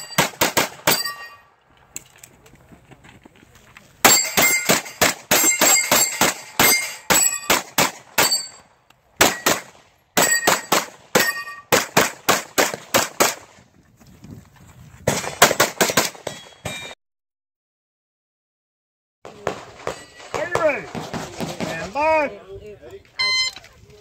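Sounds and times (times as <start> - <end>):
rapid pistol fire: 0.0 - 1.0, 7.5 - 8.4, 9.2 - 13.5, 15.1 - 16.3
steel targets ringing: 0.0 - 1.6, 4.0 - 9.6, 10.2 - 11.7, 16.3 - 17.0, 19.8 - 20.7.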